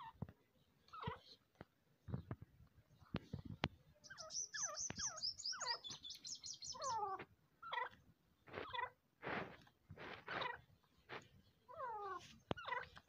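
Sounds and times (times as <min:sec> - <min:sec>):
francolin calling: 0:04.0 - 0:07.9.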